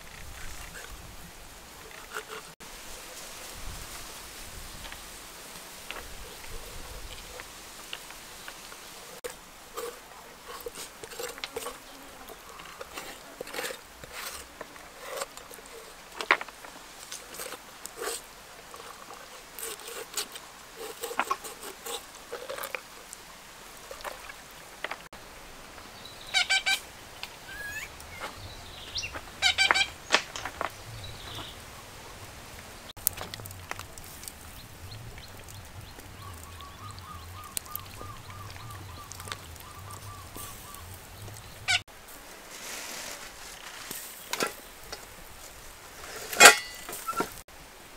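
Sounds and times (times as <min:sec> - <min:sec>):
animal calls: 0:26.3 - 0:30.2, 0:35.1 - 0:41.8.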